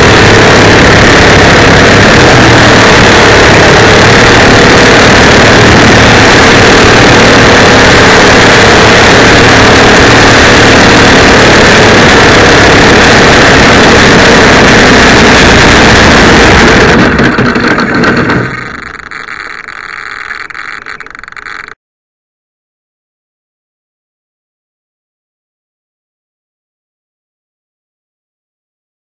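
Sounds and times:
model airplane engine running: 0.0 - 21.8.

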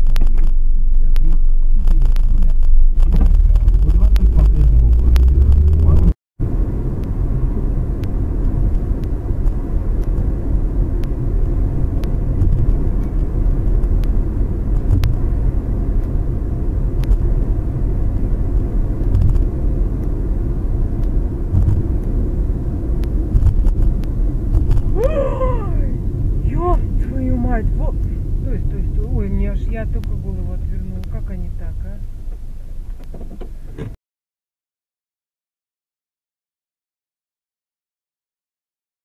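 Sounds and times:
car road and engine rumble: 0.0 - 34.0
woman's voice: 25.0 - 32.1.

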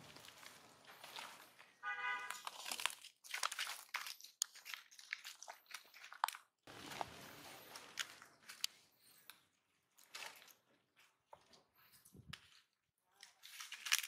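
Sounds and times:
dry leaves crunching: 0.0 - 8.7.

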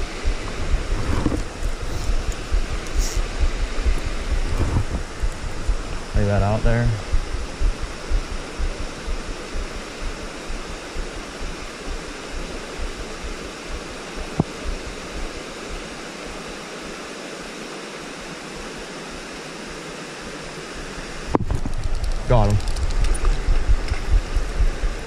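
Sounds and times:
low rumbling: 0.0 - 11.7, 21.4 - 25.0.

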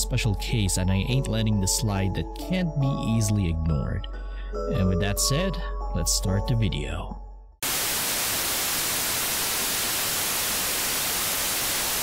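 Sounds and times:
white-noise static hiss: 7.6 - 12.0.

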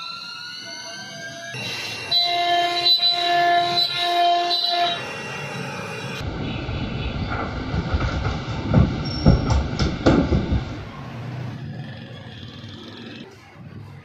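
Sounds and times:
rumbling rattling workshop noise: 6.2 - 11.8
wooden panel knocking: 8.0 - 10.7.

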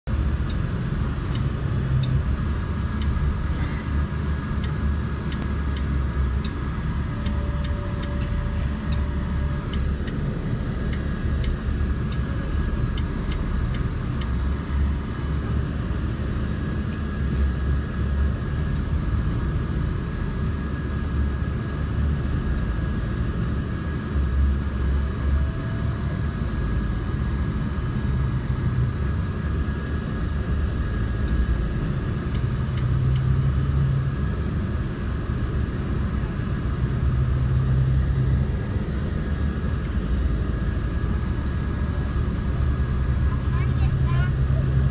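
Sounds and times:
car engine and tyres rumbling: 0.0 - 44.9.

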